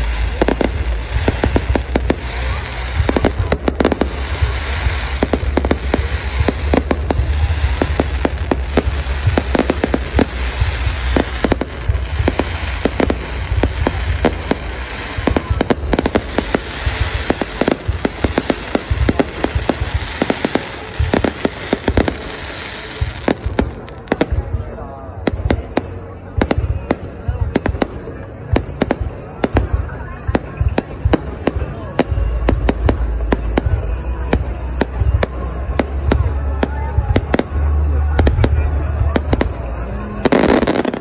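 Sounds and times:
fireworks bangs: 0:00.0 - 0:41.0.

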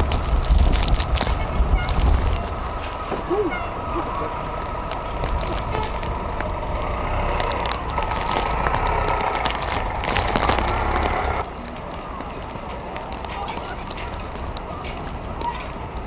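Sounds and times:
strong wind on microphone: 0:00.0 - 0:11.4.

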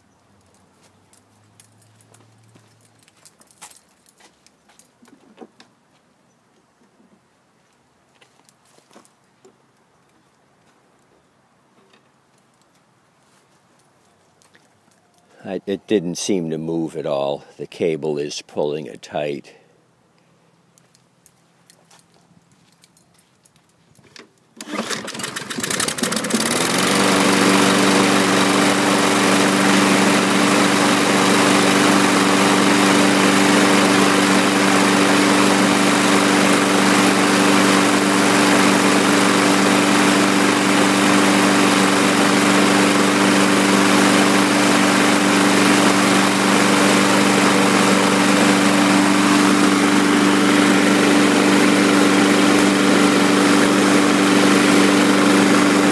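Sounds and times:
lawn mower engine running: 0:24.6 - 0:55.9.

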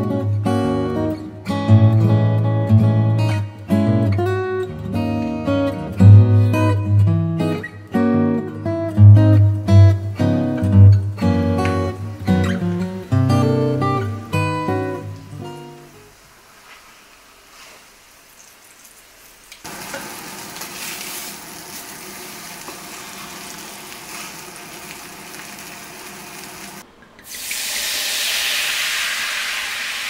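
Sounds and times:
liquid hissing in hot pan: 0:16.0 - 0:30.0
meat sizzling in frying pan: 0:16.4 - 0:30.0.

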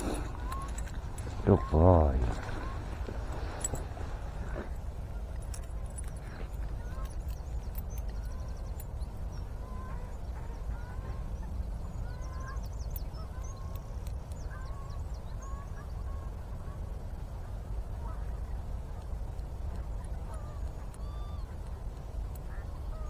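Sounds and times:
waterfowl calling: 0:00.0 - 0:03.8, 0:08.2 - 0:17.0, 0:19.7 - 0:23.0
small birds chirping: 0:00.0 - 0:23.0.

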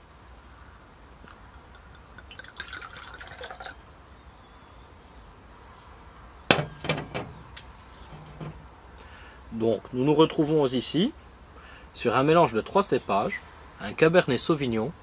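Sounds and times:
wine pouring into glass: 0:01.6 - 0:03.9
light knocks on glass: 0:06.5 - 0:07.4.

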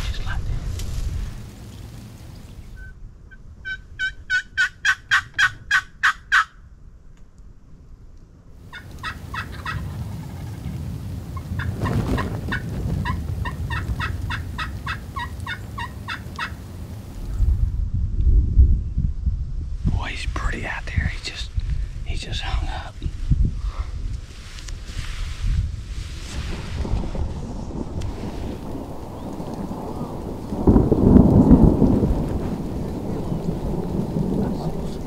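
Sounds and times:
turkey yelps: 0:03.6 - 0:06.5, 0:08.7 - 0:10.6, 0:12.5 - 0:16.6.

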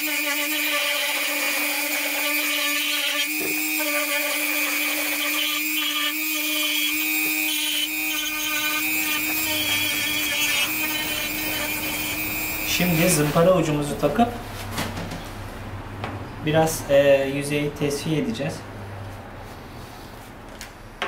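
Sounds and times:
bit rasping into wood: 0:00.0 - 0:12.3
rotary tool motor whine: 0:00.0 - 0:13.2.

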